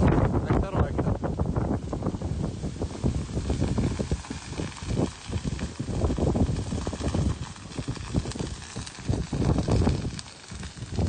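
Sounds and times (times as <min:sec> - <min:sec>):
fire crackling and popping: 0:00.0 - 0:11.0
low rumble of fire: 0:00.0 - 0:11.0.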